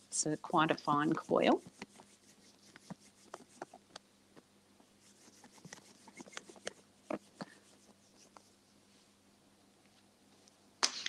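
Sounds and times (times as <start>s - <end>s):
hands rolling clay: 0.3s - 9.1s.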